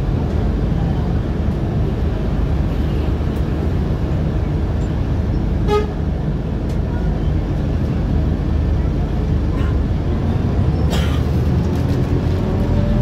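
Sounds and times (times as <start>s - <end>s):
bus engine rumble: 0.0s - 13.0s
bus horn toot: 5.6s - 6.0s.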